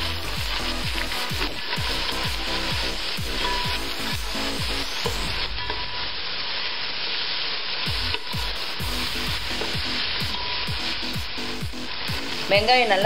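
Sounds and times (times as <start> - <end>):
onions sizzling in oil: 0.0 - 13.0
metal spatula stirring in pot: 8.0 - 12.5.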